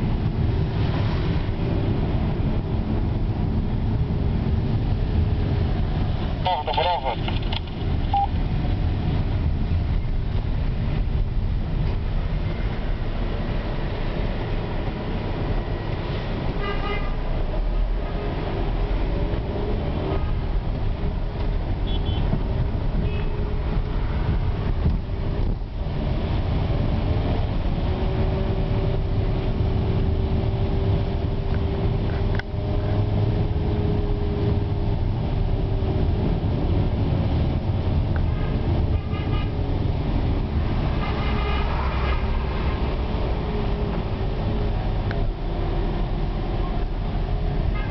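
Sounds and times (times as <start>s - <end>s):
car engine and tyre rumble: 0.0s - 47.9s
car horn toots: 16.6s - 17.2s, 21.8s - 22.3s, 38.4s - 39.6s, 41.0s - 42.3s.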